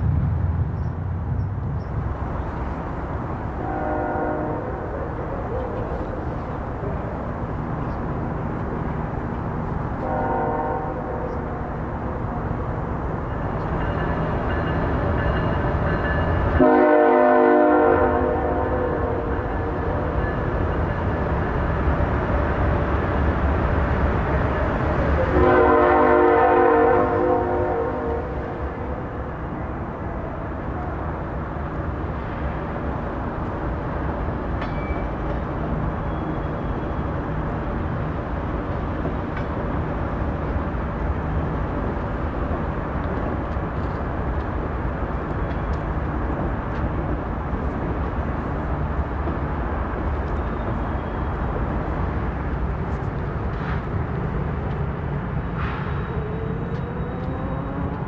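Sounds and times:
freight train rumbling past: 0.0s - 58.0s
locomotive horn chord: 3.6s - 4.8s, 10.0s - 11.6s, 16.6s - 19.4s, 25.2s - 28.4s.

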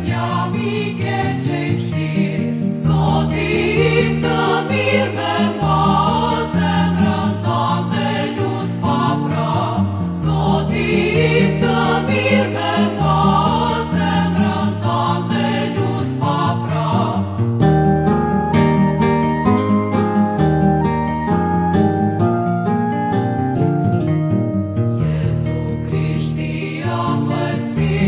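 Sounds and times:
choir singing: 0.0s - 18.8s, 24.9s - 28.0s.

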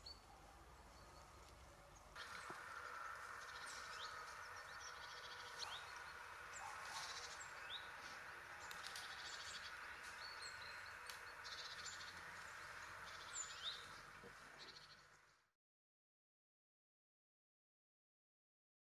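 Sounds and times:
steady background hiss: 0.0s - 15.3s
small birds chirping: 0.0s - 15.5s
buzzy bird trills: 2.2s - 15.1s.

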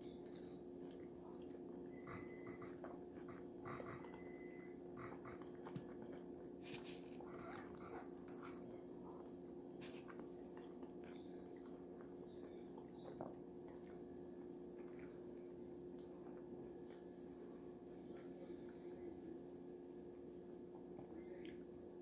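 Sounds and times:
person chewing food: 0.0s - 17.1s
faint steady hum: 0.0s - 22.0s.

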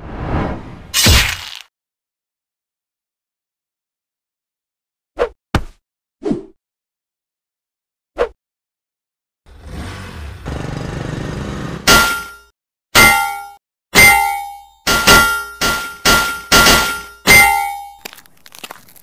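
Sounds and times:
axe striking rock: 1.0s - 1.6s.

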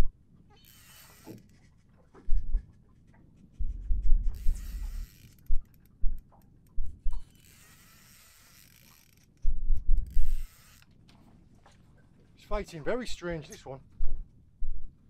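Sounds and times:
fishing reel ticking whirr: 0.6s - 1.6s, 4.3s - 11.0s
deep thumps: 3.6s - 5.0s.

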